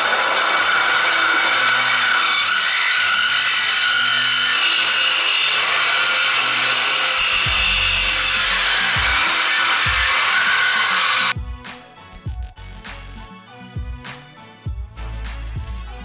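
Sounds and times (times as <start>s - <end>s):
reciprocating saw cutting metal pipe: 0.0s - 11.4s.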